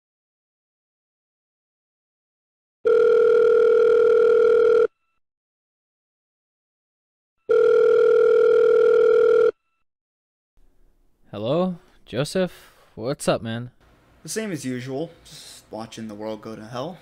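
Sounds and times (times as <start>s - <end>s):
telephone ringing: 2.8s - 5.2s, 7.4s - 9.8s.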